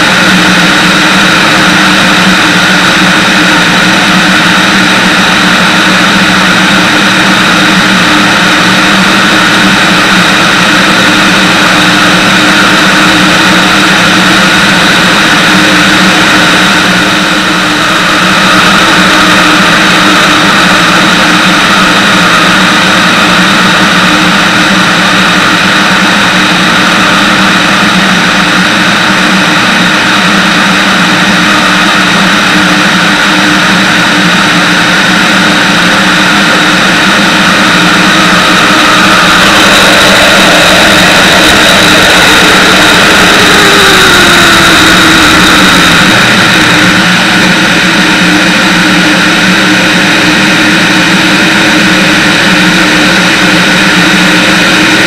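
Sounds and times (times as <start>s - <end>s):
aircraft engine and propeller drone: 0.0s - 55.0s.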